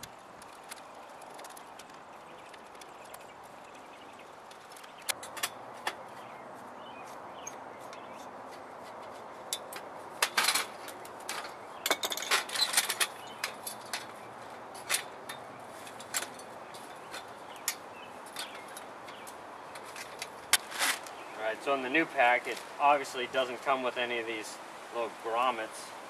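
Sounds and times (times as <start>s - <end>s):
aluminum chair frame clinking: 4.6s - 6.2s, 7.4s - 8.3s, 9.0s - 21.1s.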